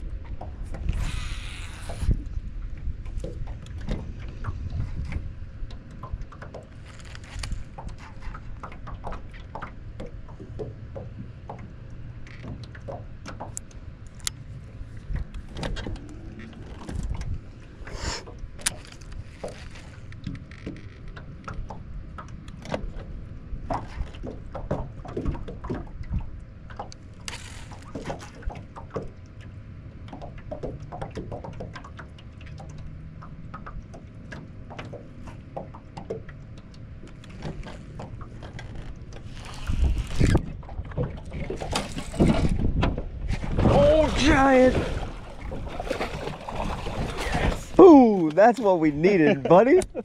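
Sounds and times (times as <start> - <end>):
waves lapping against boat hull: 0.0 - 50.0.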